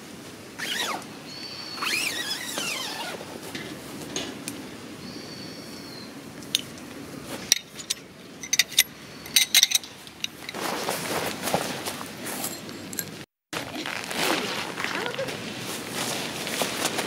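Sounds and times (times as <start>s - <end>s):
metal tent poles clinking: 6.4s - 13.3s
soft rustling: 13.6s - 17.0s.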